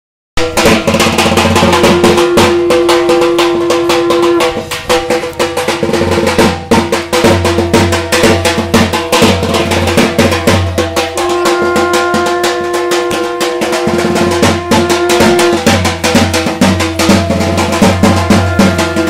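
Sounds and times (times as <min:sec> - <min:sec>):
fast drumming: 0:00.4 - 0:19.0
long held tone: 0:01.8 - 0:04.5, 0:17.9 - 0:19.0
ringing metallic tones: 0:11.0 - 0:19.0.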